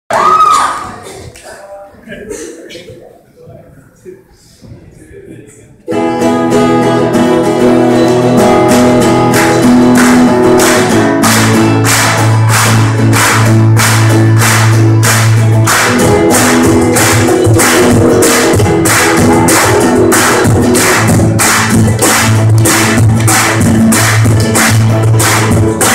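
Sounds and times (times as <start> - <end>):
cajon beat: 5.9 - 25.9
strummed acoustic guitar: 5.9 - 25.9.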